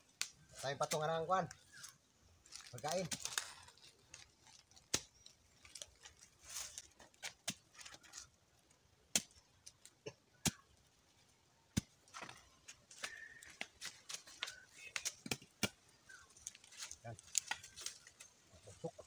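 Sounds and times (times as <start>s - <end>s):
sticks snapping and clicking: 0.1s - 1.1s, 4.1s - 6.2s, 12.9s - 18.3s
dry leaves rustling: 0.5s - 9.9s, 11.1s - 19.0s.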